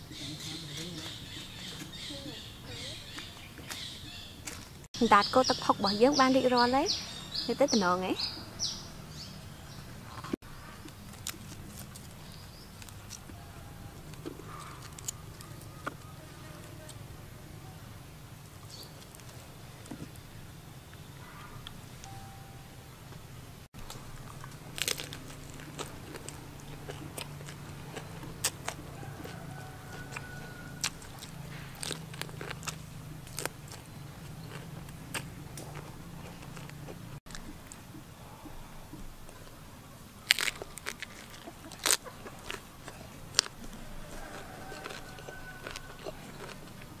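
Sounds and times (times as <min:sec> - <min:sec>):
wet chewing: 0:00.6 - 0:04.9, 0:10.1 - 0:16.6, 0:23.8 - 0:38.1, 0:40.2 - 0:47.0
crisp bites into leaf wrap: 0:23.8 - 0:27.6, 0:40.2 - 0:46.6.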